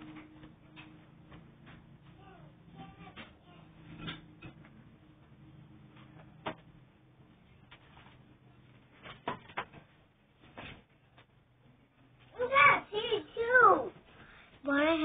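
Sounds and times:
sharp knocks and clicks: 0.0 - 6.8
faint low hum: 0.0 - 15.0.

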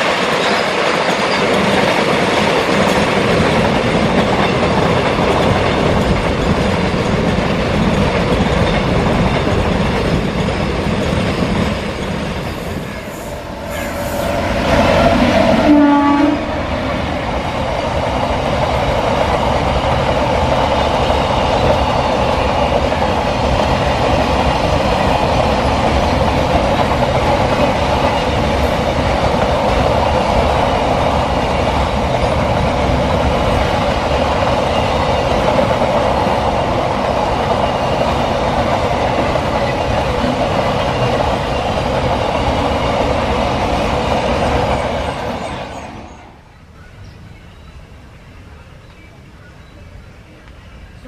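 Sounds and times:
freight train wheels on rail: 0.0 - 51.0.

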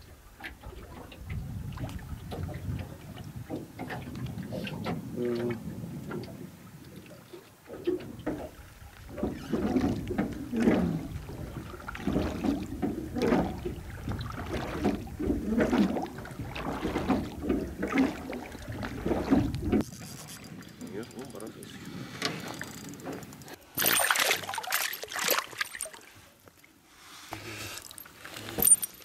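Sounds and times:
water slapping against boat hull: 0.4 - 19.9, 22.4 - 26.0.

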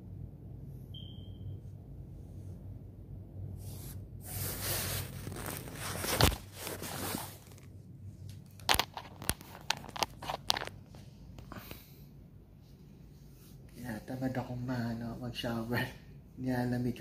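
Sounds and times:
phone handling rubbing and scraping: 4.5 - 7.7, 8.6 - 11.0.

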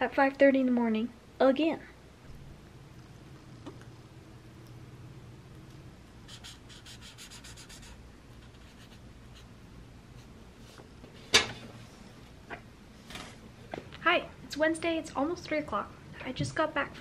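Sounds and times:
marker scratching on paper: 6.3 - 9.5.

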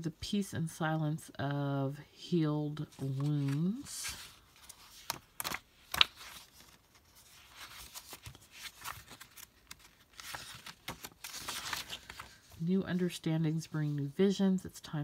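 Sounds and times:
paper pages turning: 2.8 - 13.1
paper snaps: 5.0 - 6.3.

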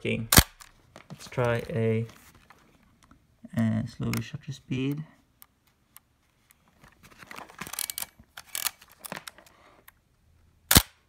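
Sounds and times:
camera mechanical clicks and rattles: 7.3 - 10.0, 10.7 - 11.0.

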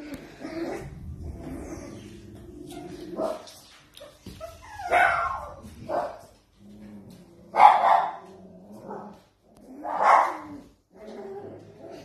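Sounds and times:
puppies yapping: 2.6 - 6.1.

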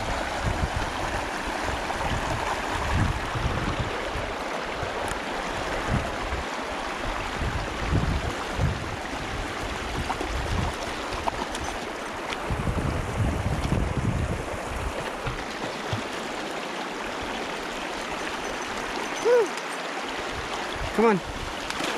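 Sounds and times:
wind buffeting microphone: 0.0 - 16.2
river flowing over rocks: 0.0 - 21.9.

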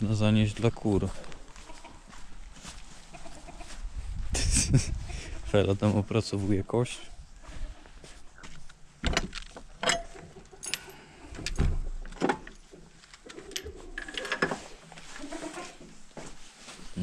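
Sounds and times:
metal hasp and chain rattling: 9.8 - 11.2.

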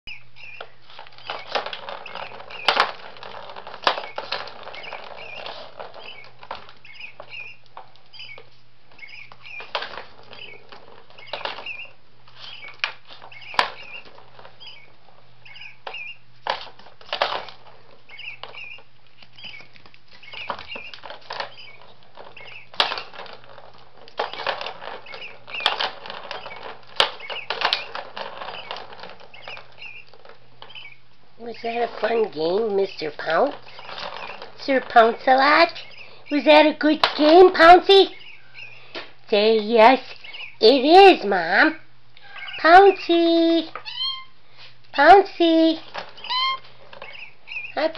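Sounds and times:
plastic balls rattling in track: 0.6 - 8.0, 9.4 - 30.8, 31.6 - 38.1, 45.0 - 47.9
paws clicking on plastic: 0.6 - 30.9.

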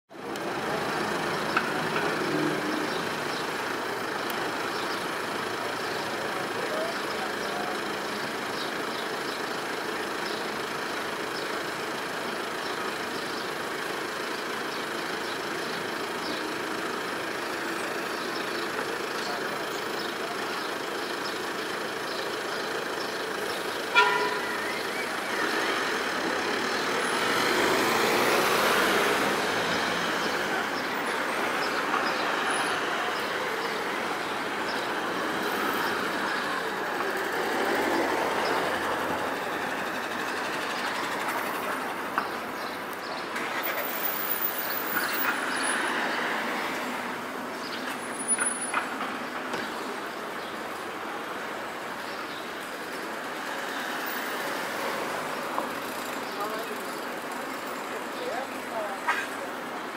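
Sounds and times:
bus moving slowly: 0.1 - 59.9
street traffic: 0.1 - 59.9
car horn toot: 23.9 - 24.8.

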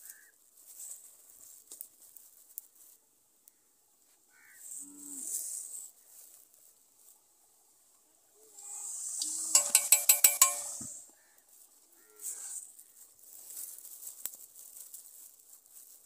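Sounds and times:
high hiss: 8.4 - 11.2
plastic bags crinkling: 12.6 - 16.0.

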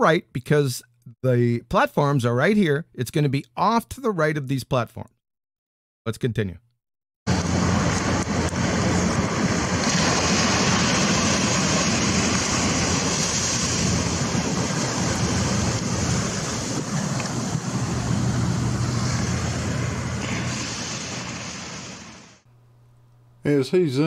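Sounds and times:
low rumble: 7.3 - 21.7
waves breaking on beach: 7.3 - 22.4.

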